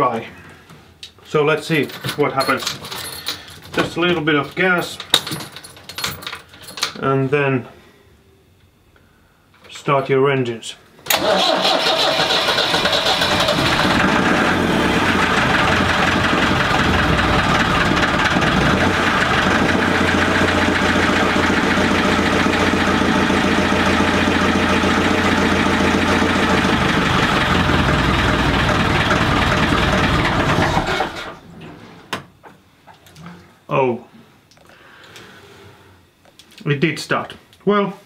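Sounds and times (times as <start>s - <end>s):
diesel engine running: 11.1s - 31.4s.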